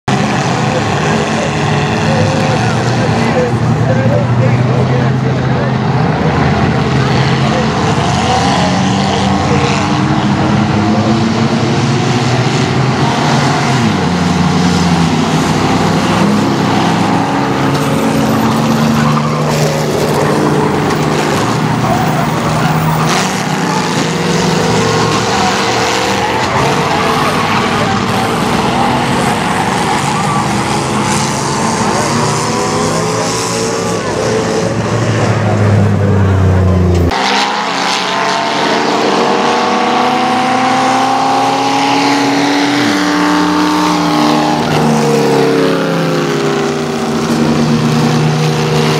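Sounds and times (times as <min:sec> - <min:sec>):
racing car engines: 0:00.0 - 0:48.9.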